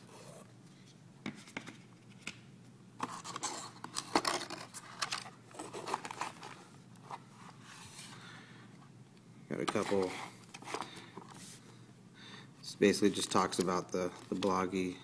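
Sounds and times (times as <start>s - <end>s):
cardboard and paper rustling: 3.0s - 8.1s, 13.2s - 14.7s.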